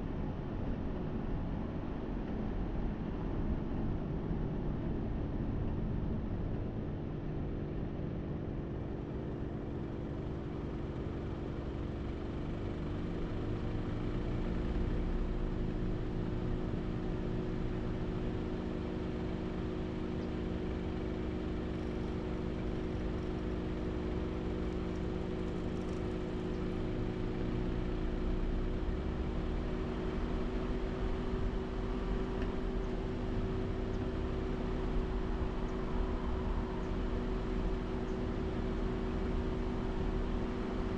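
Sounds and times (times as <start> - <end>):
vehicle engine hum: 0.0 - 40.9
road rumble: 13.6 - 40.9.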